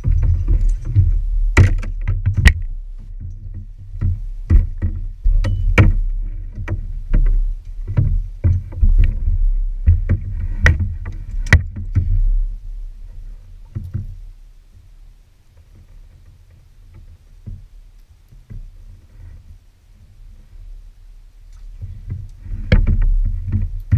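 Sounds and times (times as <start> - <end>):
kayak knocking against dock pilings: 0.0 - 12.5, 13.1 - 14.3, 15.6 - 17.7, 21.8 - 23.9.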